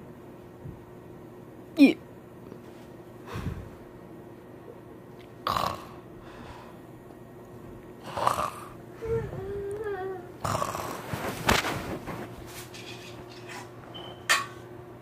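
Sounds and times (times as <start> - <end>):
wavering hummed tone: 8.9 - 10.4.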